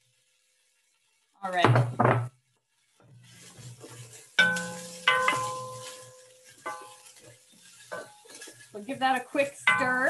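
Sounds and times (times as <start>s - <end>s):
hot oil sizzling faintly: 0.0s - 10.0s
wooden spoon stirring in pot: 0.0s - 10.0s
spoon knocking ringing metal pot: 4.4s - 7.2s, 9.7s - 10.0s.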